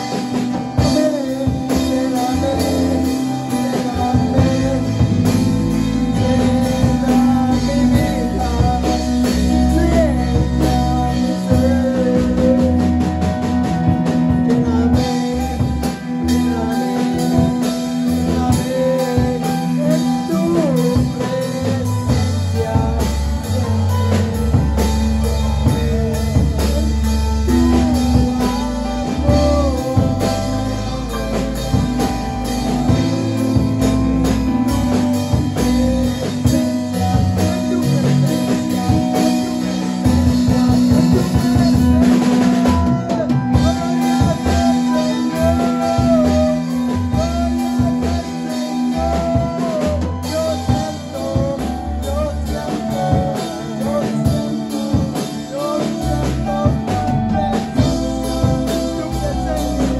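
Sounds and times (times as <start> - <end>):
drum kit: 0.0 - 59.9
man singing through a pa: 0.0 - 59.9.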